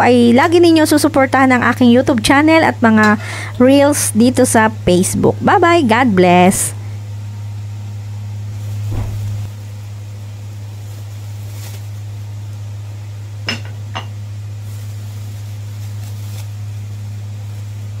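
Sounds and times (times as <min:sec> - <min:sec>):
steady low hum: 0:00.0 - 0:18.0
soft thump: 0:08.9 - 0:09.5.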